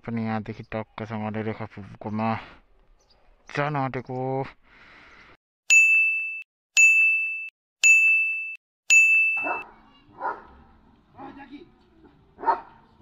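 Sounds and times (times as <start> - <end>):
electronic ding tones: 5.7 - 9.6.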